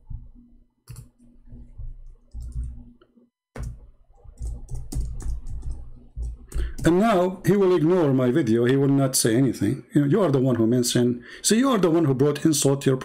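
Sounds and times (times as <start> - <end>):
mouse and keyboard clicking: 3.6 - 7.0.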